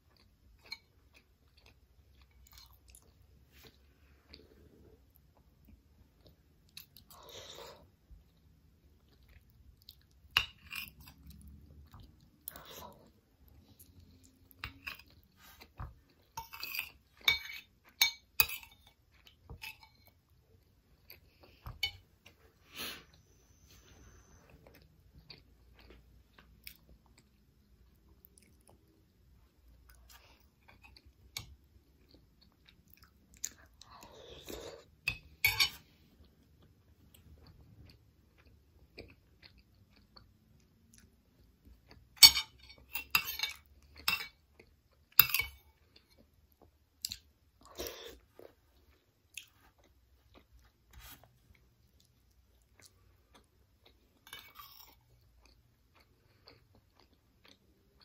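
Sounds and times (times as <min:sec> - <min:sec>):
person chewing with mouth clicks: 0:24.2 - 0:29.1, 0:36.2 - 0:42.1, 0:45.8 - 0:58.0.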